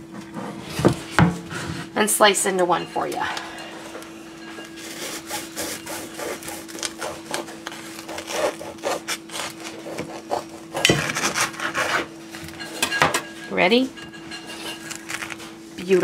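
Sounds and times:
bread knife sawing through bread: 4.8 - 12.1.

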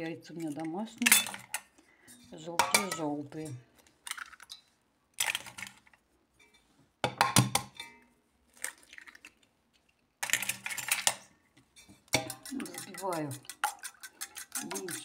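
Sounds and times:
metal utensils and bowls clinking: 0.3 - 9.1, 10.2 - 15.0.

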